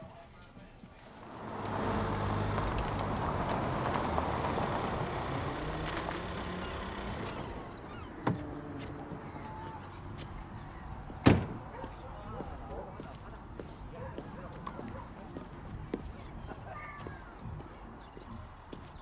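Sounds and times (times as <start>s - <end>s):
car engine running: 1.2s - 9.4s.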